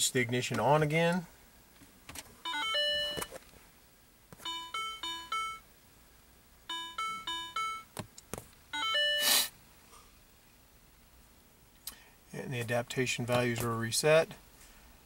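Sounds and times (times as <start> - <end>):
electronic chime tones: 2.5 - 3.3, 4.4 - 5.6, 6.7 - 7.9, 8.8 - 9.3.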